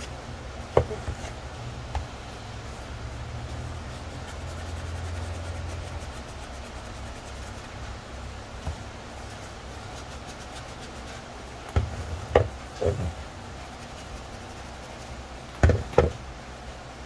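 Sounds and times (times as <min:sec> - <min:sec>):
sanding sponge rubbing plastic: 0:02.6 - 0:12.1, 0:12.7 - 0:15.4.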